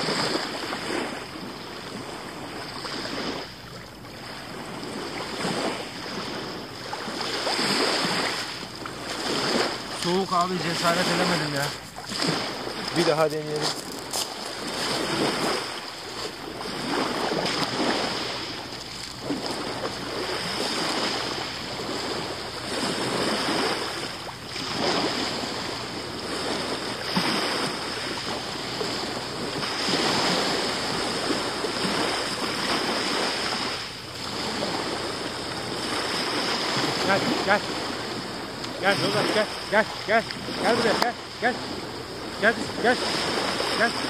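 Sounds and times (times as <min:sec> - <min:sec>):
waves washing over shingle: 0:00.0 - 0:44.0.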